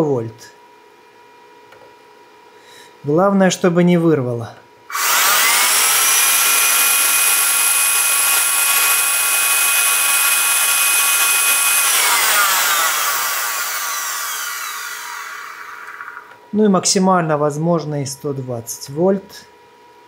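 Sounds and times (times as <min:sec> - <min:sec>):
motor whining: 0:04.9 - 0:16.4.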